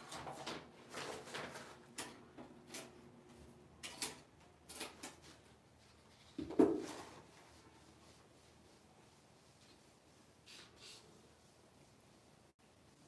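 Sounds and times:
sponge eraser wiping whiteboard: 5.9s - 12.5s
whiteboard handling knocks and rustles: 6.2s - 7.3s.

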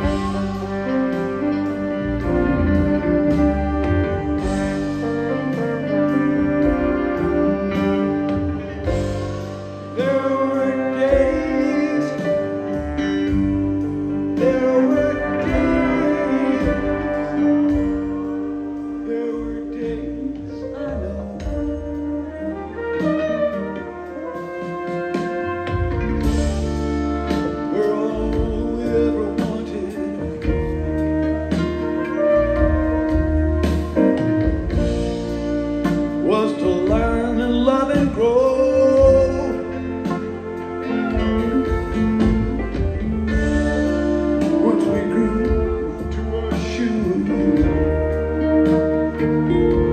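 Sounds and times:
live band playing slow instrumental: 0.0s - 49.9s.

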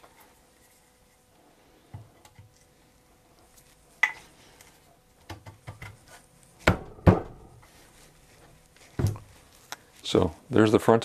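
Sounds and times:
wooden chair parts knocking: 6.6s - 7.6s.

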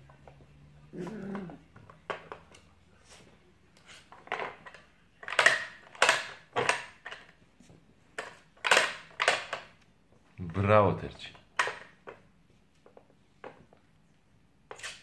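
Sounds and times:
hard plastic pieces clattering: 4.2s - 7.3s.

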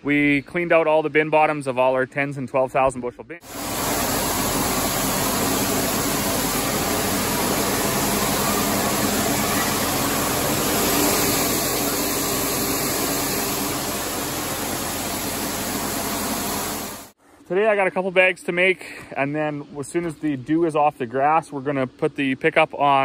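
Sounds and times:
low machine hum: 3.4s - 17.2s
machine rushing hiss: 3.4s - 17.2s.

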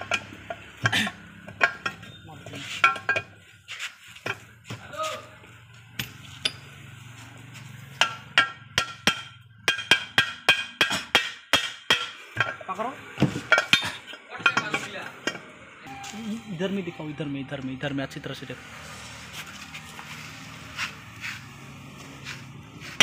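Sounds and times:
hammer striking metal shaft: 8.0s - 16.0s.

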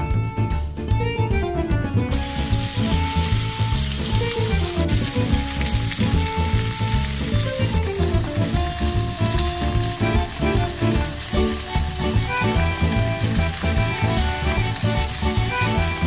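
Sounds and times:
fiddle music with bass beat: 0.0s - 16.0s
food sizzling in a pan: 2.1s - 16.0s.

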